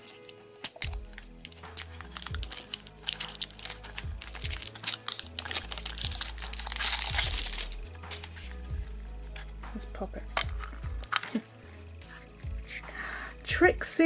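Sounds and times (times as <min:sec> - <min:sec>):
wrapper crinkling and tearing: 0:00.0 - 0:08.6, 0:10.3 - 0:12.8
background music with bass line: 0:00.8 - 0:14.0.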